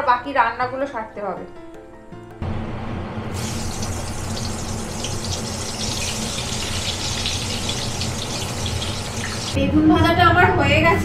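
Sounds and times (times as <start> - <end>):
low hum: 2.4 - 10.9
eggplant sizzling in hot oil: 3.3 - 9.6.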